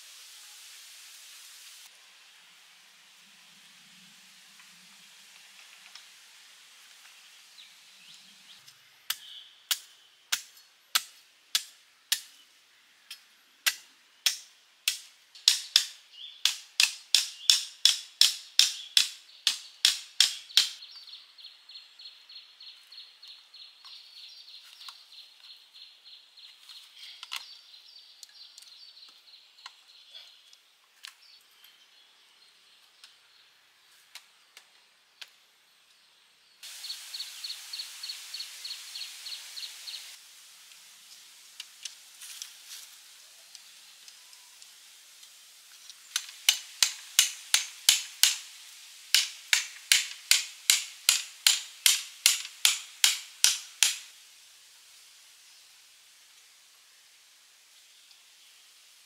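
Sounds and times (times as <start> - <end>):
cicada clicking and buzzing: 43.5 - 54.2.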